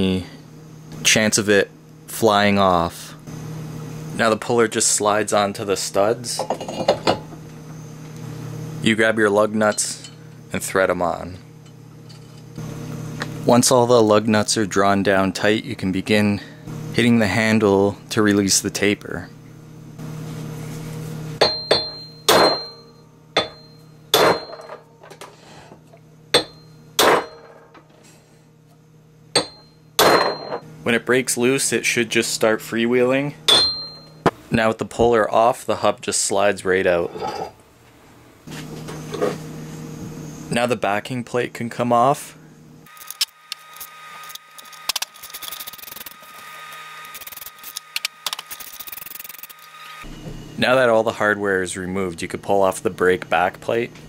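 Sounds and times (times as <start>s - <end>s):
hammer striking metal: 21.4s - 24.8s, 26.4s - 27.6s, 29.4s - 30.6s, 33.5s - 34.3s
hand ratchet clicking: 47.0s - 49.7s.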